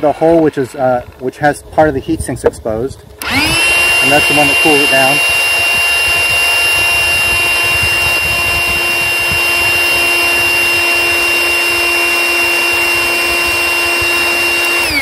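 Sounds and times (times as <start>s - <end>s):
power inflator motor whine: 3.2s - 15.0s.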